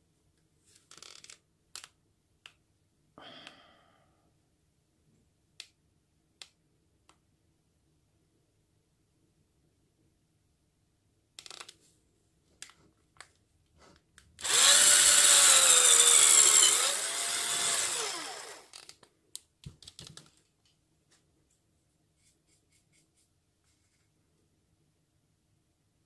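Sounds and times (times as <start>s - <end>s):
electric drill boring wood: 14.4s - 18.8s.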